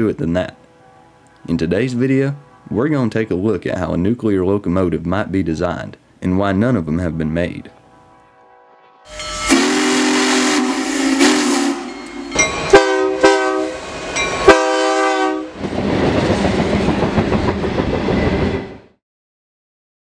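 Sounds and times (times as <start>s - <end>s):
train rumbling past: 0.3s - 3.8s, 7.5s - 19.0s
train horn blasts: 7.7s - 15.6s.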